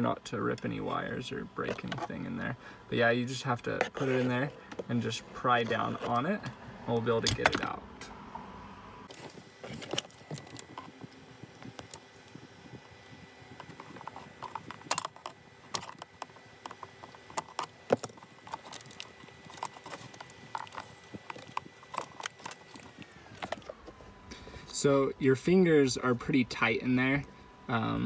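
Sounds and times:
screwdriver prying at plastic connector: 0:13.6 - 0:23.7.

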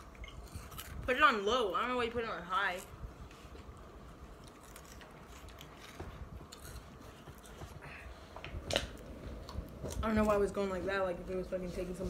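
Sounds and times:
people chewing crunchy chips: 0:00.0 - 0:01.2, 0:03.4 - 0:10.1.

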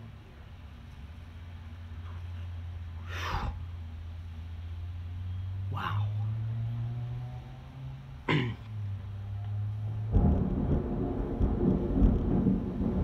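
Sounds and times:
low thunder rumble: 0:10.0 - 0:13.0
loud rolling thunder: 0:10.1 - 0:13.0.

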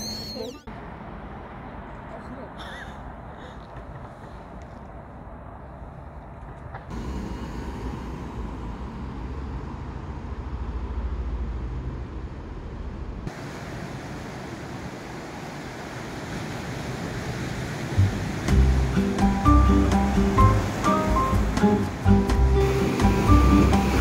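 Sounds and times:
surf breaking on rocks: 0:13.3 - 0:24.0.

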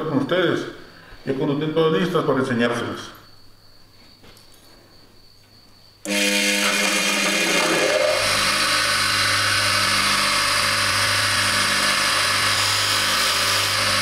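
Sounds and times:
bench grinder motor hum: 0:06.0 - 0:14.0.

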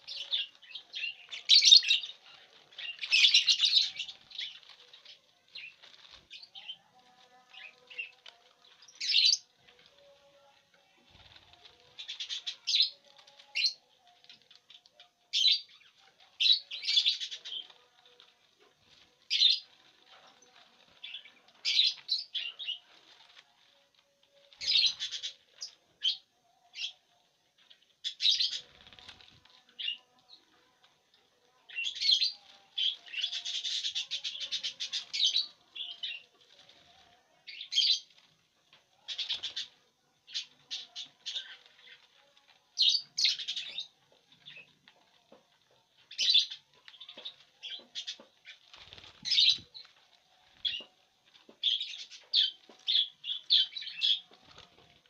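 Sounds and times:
lovebirds chirping: 0:00.0 - 0:27.1, 0:27.7 - 0:38.3, 0:39.0 - 0:55.0
wings flapping: 0:47.2 - 0:50.8.

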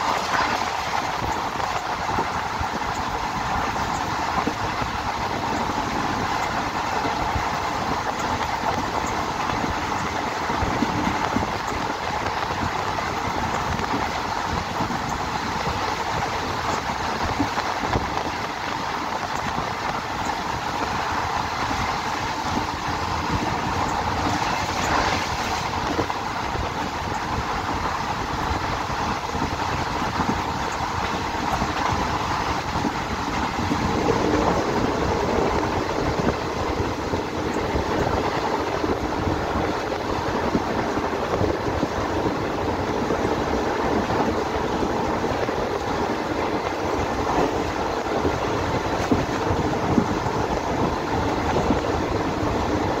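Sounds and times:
rail joint clickety-clack: 0:00.0 - 0:53.0
train wheels rolling on rails: 0:00.0 - 0:53.0.

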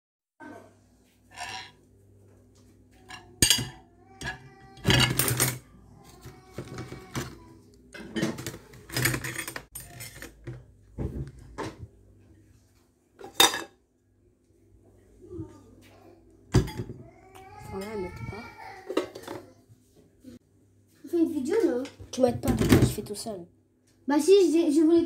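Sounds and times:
dishes clinking in a dish rack: 0:03.0 - 0:05.6, 0:08.0 - 0:10.6, 0:13.2 - 0:13.8, 0:16.5 - 0:17.0.

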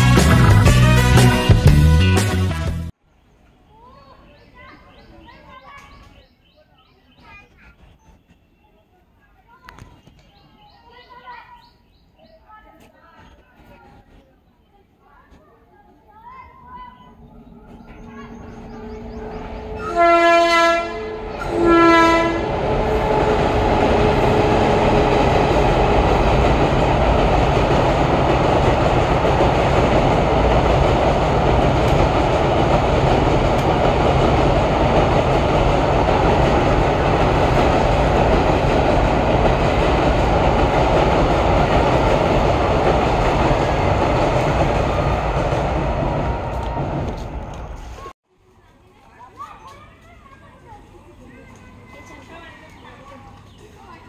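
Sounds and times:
train rumbling over steel bridge: 0:00.0 - 0:02.1, 0:16.2 - 0:48.2
train horn blasts: 0:18.3 - 0:25.0.

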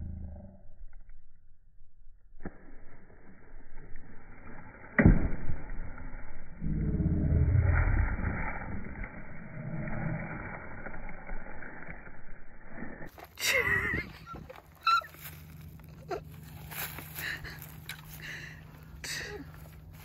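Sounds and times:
dull rumbling noise: 0:00.0 - 0:20.0.

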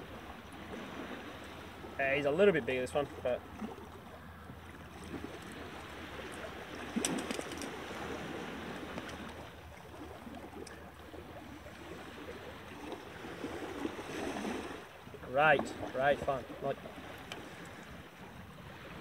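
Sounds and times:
waves lapping on rocks: 0:00.0 - 0:19.0
handling clicks and rustles: 0:07.0 - 0:07.8.

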